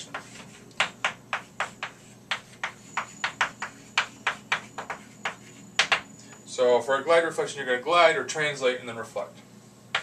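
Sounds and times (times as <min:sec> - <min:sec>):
chalk tapping and dragging on chalkboard: 0:00.0 - 0:06.1.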